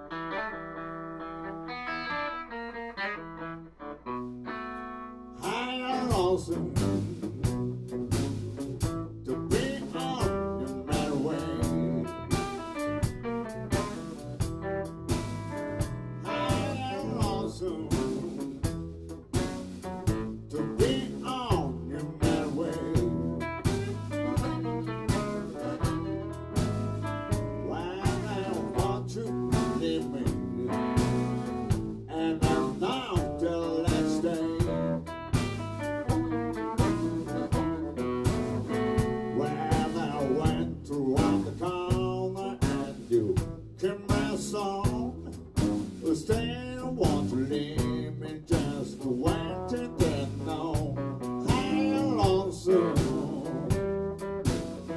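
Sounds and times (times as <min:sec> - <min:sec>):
blues band playing: 0:00.0 - 0:54.9
amplified harmonica: 0:10.0 - 0:17.8, 0:21.9 - 0:29.0, 0:32.9 - 0:40.7.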